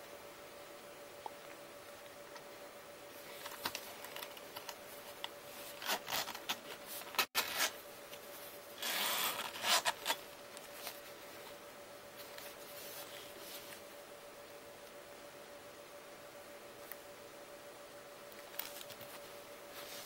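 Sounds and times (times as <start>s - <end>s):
zipper rasp: 8.8s - 10.2s.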